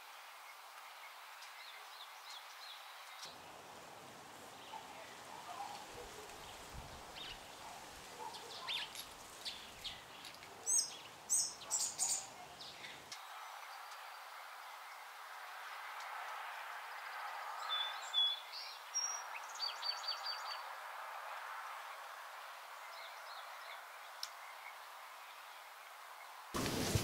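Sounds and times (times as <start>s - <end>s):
birds chirping: 0.4s - 3.7s, 4.4s - 20.7s.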